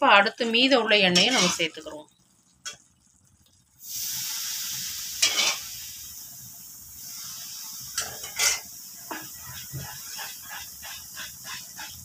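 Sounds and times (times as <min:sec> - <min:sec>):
batter sizzling in hot oil: 0:00.0 - 0:12.0.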